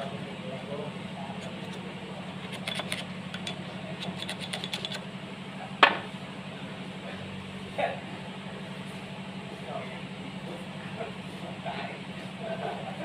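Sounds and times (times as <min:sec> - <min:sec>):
steady low hum: 0:00.0 - 0:13.0
screwdriver clicking against metal: 0:02.4 - 0:05.0.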